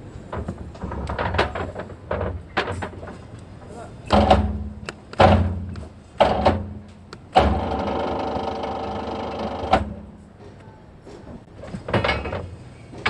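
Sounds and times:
machine clunk: 0:04.0 - 0:10.2, 0:11.6 - 0:13.0
bending machine motor running: 0:07.3 - 0:10.2.

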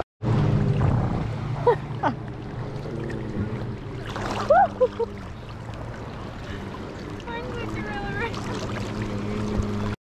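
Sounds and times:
water sloshing around horses' legs: 0:00.7 - 0:10.0
person whooping: 0:04.5 - 0:04.9.

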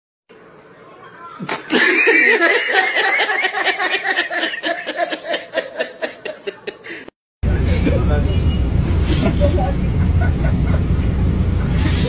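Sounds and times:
person laughing hard: 0:01.4 - 0:07.1.

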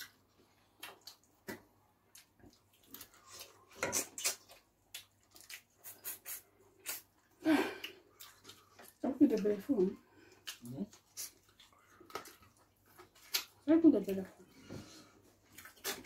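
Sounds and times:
chewing and lip smacking: 0:00.0 - 0:09.6, 0:10.2 - 0:13.6, 0:15.3 - 0:16.0.

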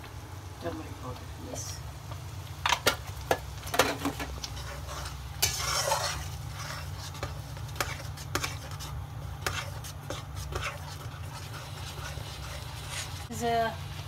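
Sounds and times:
faint sizzle: 0:00.0 - 0:14.0
metal ladle scraping wok: 0:03.7 - 0:13.4.

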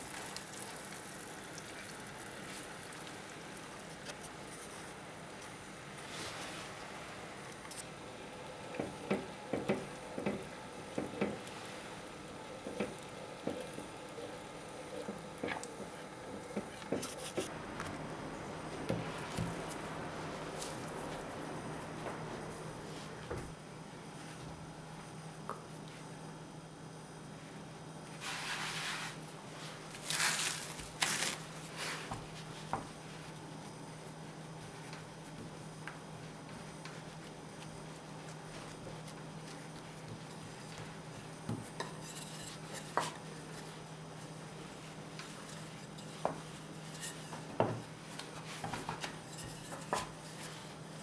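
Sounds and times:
syrup bubbling in a saucepan: 0:00.0 - 0:05.1
hands swishing flour on board: 0:28.2 - 0:33.4
spatula scraping a pan: 0:41.7 - 0:43.8, 0:45.2 - 0:47.5, 0:48.4 - 0:50.8.

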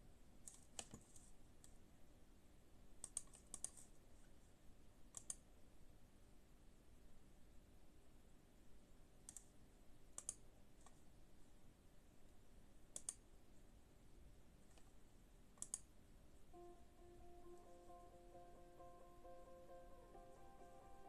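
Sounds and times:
faint sharp clicks: 0:03.0 - 0:03.9, 0:05.1 - 0:05.4, 0:09.3 - 0:09.6, 0:10.2 - 0:11.0, 0:12.9 - 0:13.2, 0:15.6 - 0:15.9.

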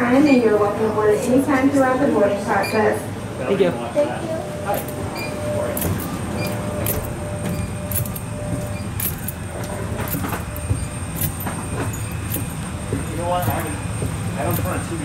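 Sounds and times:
footsteps clicking: 0:05.6 - 0:15.0.

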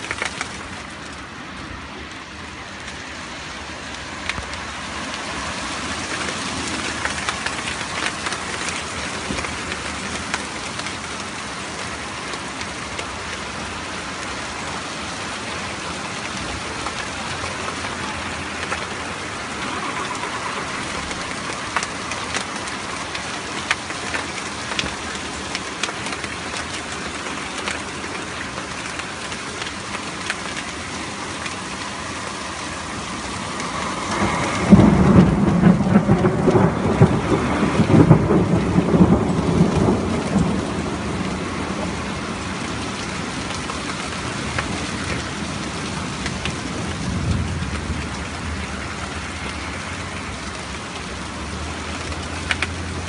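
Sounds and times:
heavy rain on tarmac: 0:00.0 - 0:53.0
raindrops ticking: 0:00.0 - 0:53.0
thunder clap and rumble: 0:32.5 - 0:53.0.

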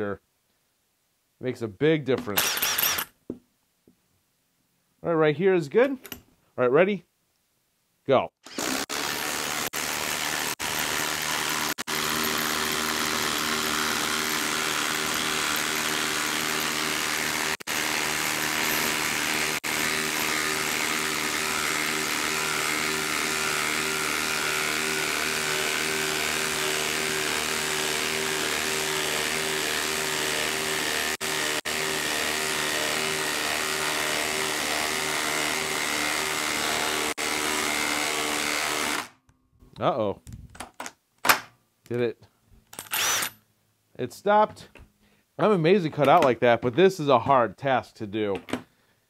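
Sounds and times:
impact driver hammering: 0:02.3 - 0:03.1.

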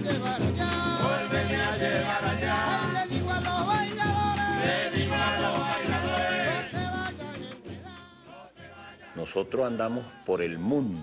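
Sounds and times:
guitars strumming: 0:00.0 - 0:07.7
person singing: 0:00.0 - 0:08.4
maracas shaking: 0:00.0 - 0:09.2.

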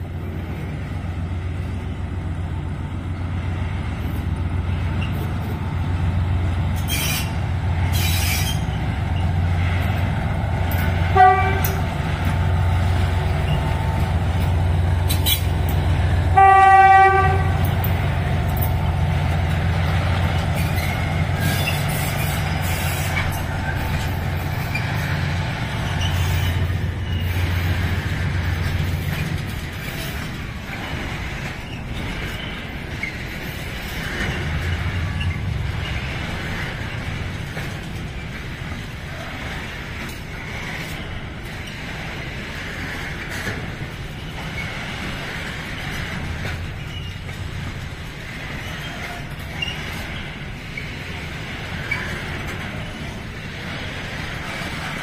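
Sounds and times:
diesel locomotive engine running: 0:00.0 - 0:55.0
locomotive horn: 0:11.0 - 0:12.0, 0:16.2 - 0:17.9.

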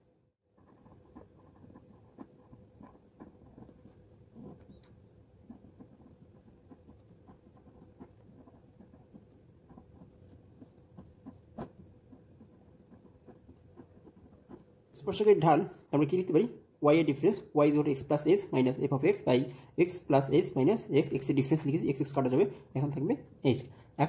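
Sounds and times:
pen scratching on paper: 0:00.5 - 0:14.8.

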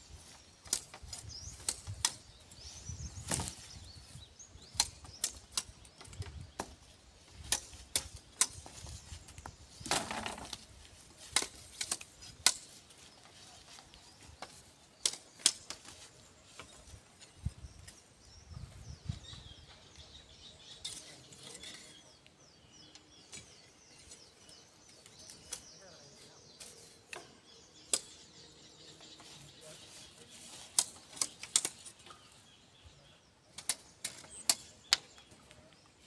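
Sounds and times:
birds chirping: 0:00.0 - 0:36.0
knocks on bamboo: 0:09.8 - 0:10.6.

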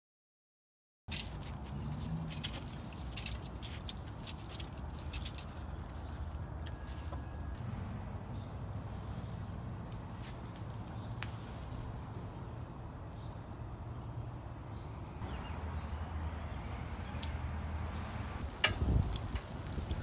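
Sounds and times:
bicycle rattle and squeak: 0:01.1 - 0:07.6, 0:18.4 - 0:20.0.

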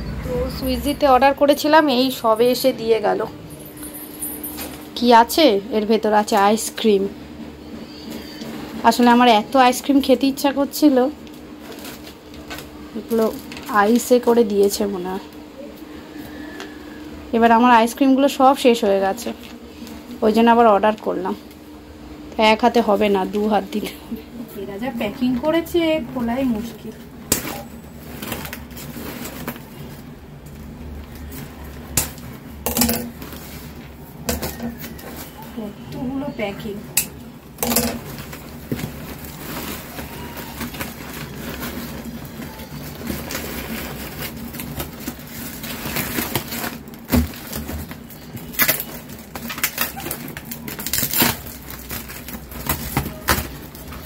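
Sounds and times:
plastic packaging tearing and crinkling: 0:11.0 - 0:15.0, 0:26.5 - 0:35.6, 0:37.6 - 0:54.0.

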